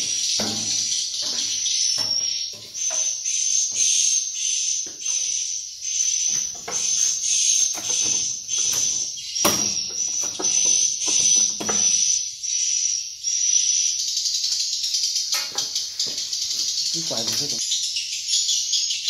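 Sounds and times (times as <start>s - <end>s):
handling knocks and rustles: 0.0s - 3.2s
swiftlets twittering: 0.0s - 17.6s.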